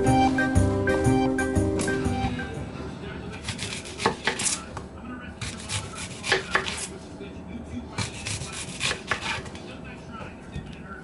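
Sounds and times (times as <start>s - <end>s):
knife chopping on cutting board: 3.4s - 4.6s, 5.4s - 6.9s, 8.0s - 9.6s.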